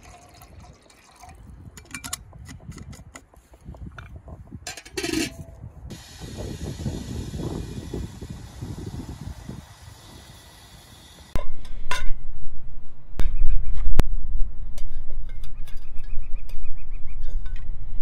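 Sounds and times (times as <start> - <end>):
metal clinks and rattles: 1.8 - 3.2.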